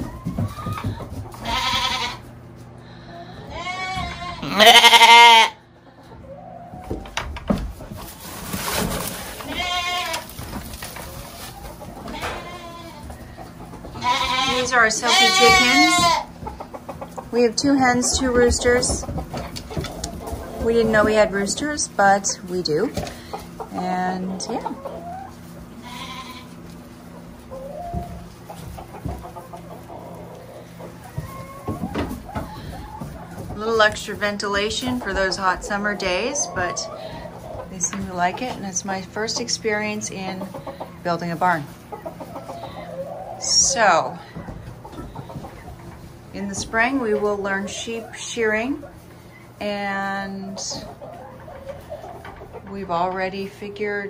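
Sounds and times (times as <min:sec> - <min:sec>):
chickens clucking and peeping: 0:00.0 - 0:54.0
lambs bleating: 0:01.4 - 0:02.3, 0:03.3 - 0:05.6, 0:09.4 - 0:10.4, 0:12.0 - 0:13.1, 0:13.9 - 0:16.4, 0:25.8 - 0:26.6.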